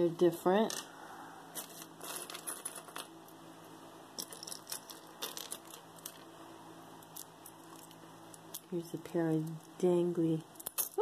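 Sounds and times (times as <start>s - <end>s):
metal earrings clinking: 1.6s - 3.1s, 4.2s - 6.3s, 7.0s - 9.8s, 10.5s - 11.0s.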